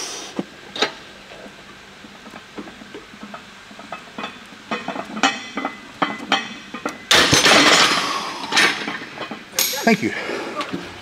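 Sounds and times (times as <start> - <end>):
bar clattering into rack: 4.2 - 9.8.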